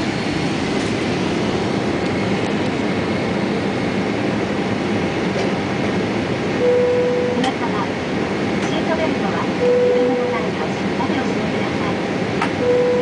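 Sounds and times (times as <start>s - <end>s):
airliner cabin noise: 0.0s - 13.0s.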